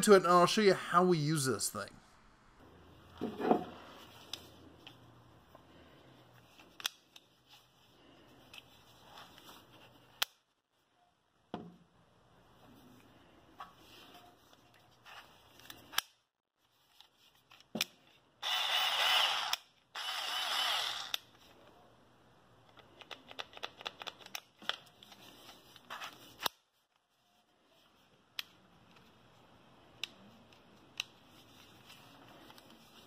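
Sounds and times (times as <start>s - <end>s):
cordless screwdriver motor spinning: 18.4s - 21.3s.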